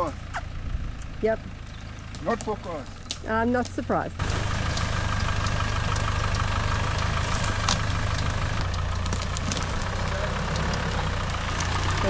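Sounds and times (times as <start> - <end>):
vehicle engine running at low revs: 0.0 - 12.0
short crackles and clicks: 4.2 - 12.0.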